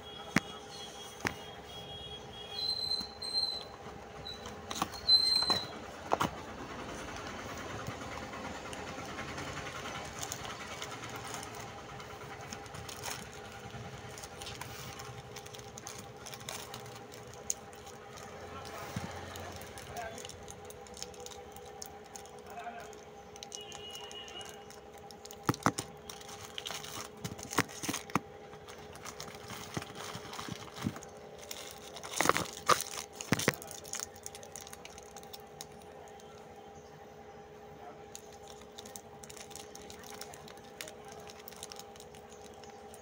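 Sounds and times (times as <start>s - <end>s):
steady hum: 0.0s - 43.0s
plastic wrappers crinkling: 7.0s - 36.5s, 38.1s - 43.0s.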